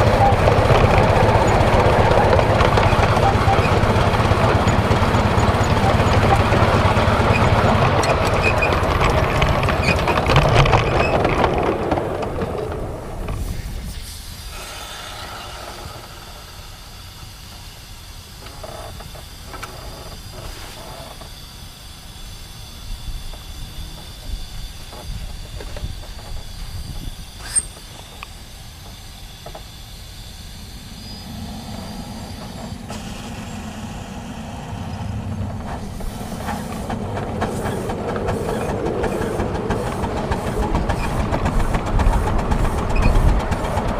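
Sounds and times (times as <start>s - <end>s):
steam locomotive running: 0.0s - 43.9s
steam hissing: 12.5s - 43.9s.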